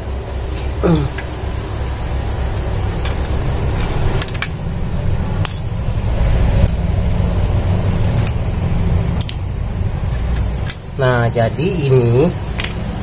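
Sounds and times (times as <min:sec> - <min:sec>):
steady low rumble: 0:00.0 - 0:13.0
metal gears clicking: 0:05.4 - 0:07.2, 0:09.2 - 0:09.4.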